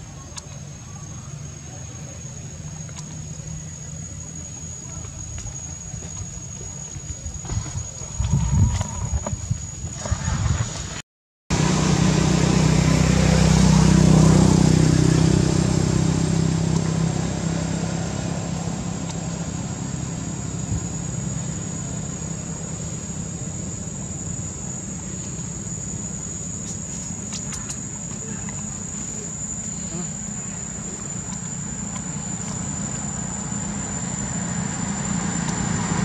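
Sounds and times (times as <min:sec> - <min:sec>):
insects droning: 0:00.0 - 0:36.0
vehicle engine passing: 0:11.5 - 0:23.8, 0:28.6 - 0:36.0.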